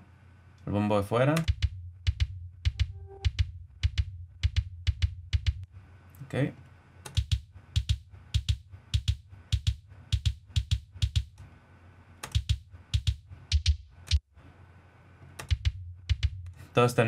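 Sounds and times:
kick drum hits: 0:01.5 - 0:05.6, 0:07.2 - 0:11.3, 0:12.4 - 0:13.9, 0:15.5 - 0:16.4.

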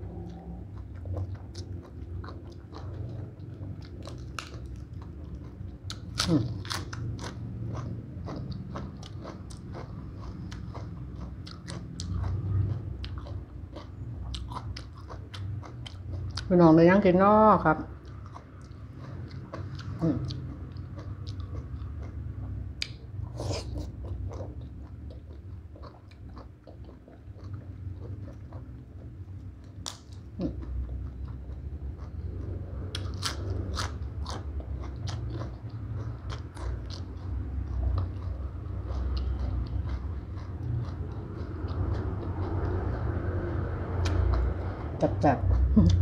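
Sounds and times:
wet chewing: 0:00.1 - 0:16.5, 0:17.9 - 0:46.0.

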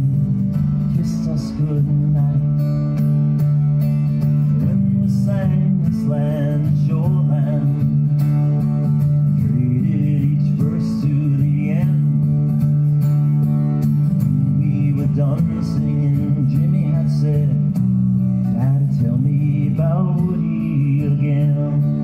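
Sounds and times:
man singing: 0:00.0 - 0:03.0, 0:04.5 - 0:08.2, 0:09.2 - 0:12.4, 0:14.1 - 0:17.8, 0:18.4 - 0:22.0
acoustic guitar strumming: 0:00.0 - 0:22.0.

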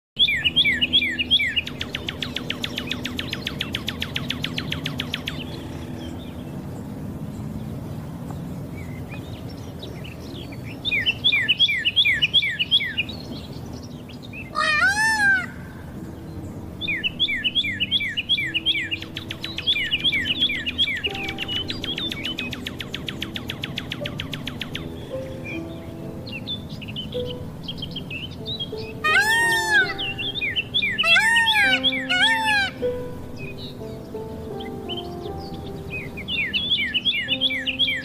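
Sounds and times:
birdsong chirping: 0:00.2 - 0:38.0
peacock call: 0:14.5 - 0:15.7, 0:29.0 - 0:30.3, 0:31.0 - 0:32.9.

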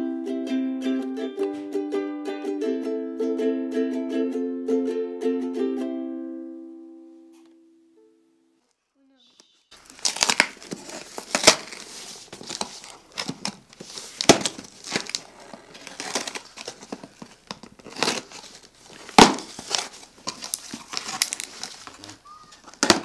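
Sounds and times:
cardboard rustling and scraping: 0:09.8 - 0:23.0
scissors cutting packing tape: 0:10.0 - 0:11.9, 0:17.5 - 0:18.5.

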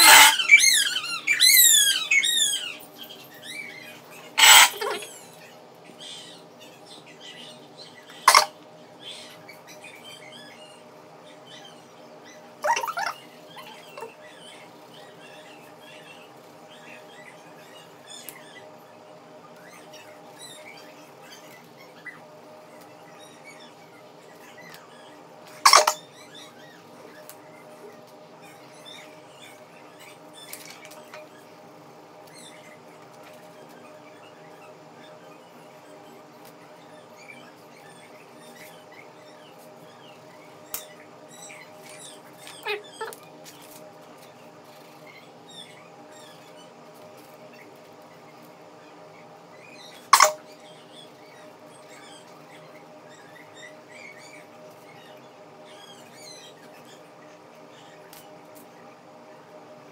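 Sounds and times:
high chirping squeaks: 0:00.0 - 0:05.4, 0:07.4 - 0:18.7, 0:23.1 - 0:27.2, 0:49.6 - 0:57.0
steady low hum: 0:00.0 - 0:59.9.

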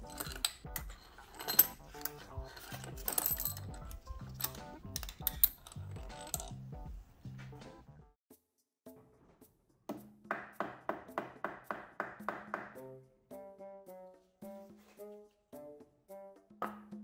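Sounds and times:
small metal clicks and clinks: 0:00.0 - 0:06.6
background music: 0:00.0 - 0:17.0.

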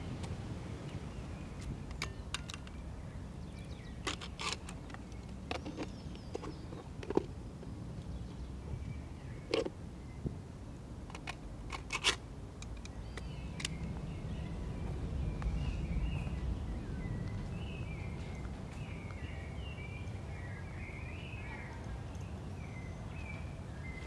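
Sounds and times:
birds chirping: 0:00.0 - 0:10.3, 0:12.6 - 0:24.0
steady low rumble: 0:12.3 - 0:24.0.

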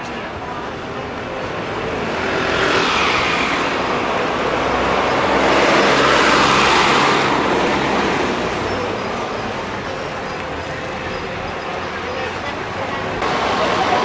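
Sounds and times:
truck tyres on road: 0:00.0 - 0:14.0
truck engine hum: 0:03.6 - 0:14.0.

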